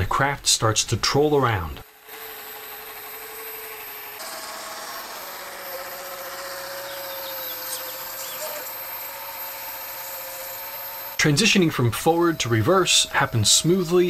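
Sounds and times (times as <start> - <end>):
small boat motor running: 1.8 - 14.0
faint bird chirps: 6.8 - 8.8.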